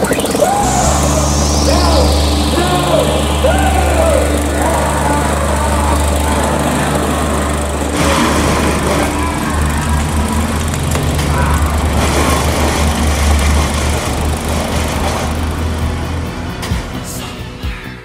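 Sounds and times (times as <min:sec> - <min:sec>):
lawn mower engine droning: 0:00.0 - 0:17.0.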